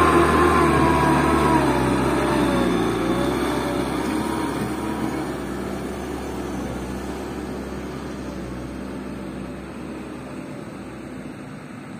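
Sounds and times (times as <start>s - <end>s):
diesel dump truck engine: 0.0s - 11.9s.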